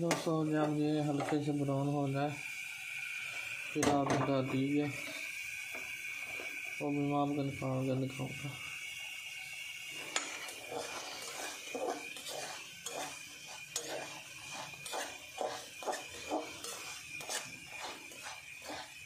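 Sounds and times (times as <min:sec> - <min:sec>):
steady high hiss: 0:00.0 - 0:19.0
spoon scraping a saucepan: 0:10.0 - 0:19.0.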